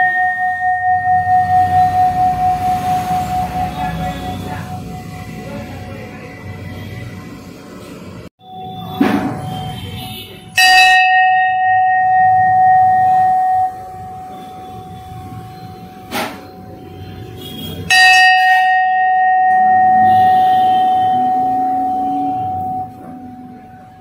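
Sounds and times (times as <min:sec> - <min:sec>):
large bell ringing: 0:00.0 - 0:06.5, 0:10.5 - 0:16.7, 0:17.8 - 0:24.0.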